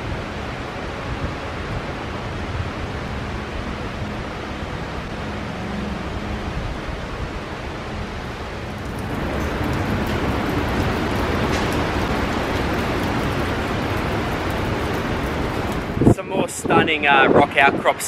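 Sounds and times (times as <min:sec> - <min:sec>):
wind buffeting on microphone: 0:06.0 - 0:18.0
wind rushing: 0:08.4 - 0:18.0.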